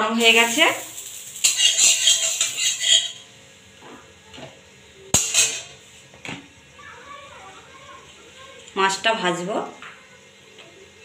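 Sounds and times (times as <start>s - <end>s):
metal spatula scraping pan: 0.7s - 3.3s.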